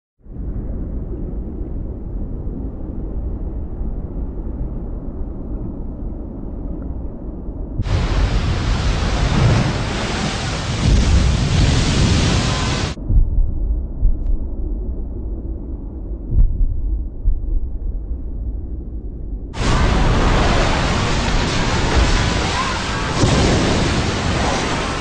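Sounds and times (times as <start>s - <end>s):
rushing water roar: 7.8s - 13.0s, 19.6s - 25.0s.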